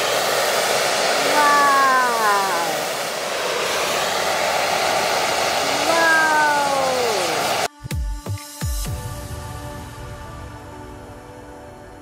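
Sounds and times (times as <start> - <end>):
descending multi-tone glide: 0.0 - 7.7
gas torch flame hissing: 0.0 - 7.7.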